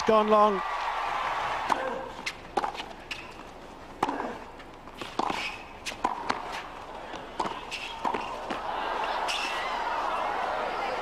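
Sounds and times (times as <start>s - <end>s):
tennis racket hitting ball: 1.6s - 3.4s, 4.0s - 8.7s
crowd murmur: 6.4s - 11.0s.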